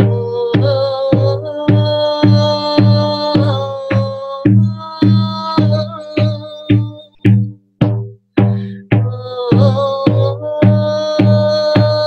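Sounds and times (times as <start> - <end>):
woman chanting wordlessly: 0.0 - 7.3, 9.0 - 12.0
frame drum beats: 0.0 - 12.0.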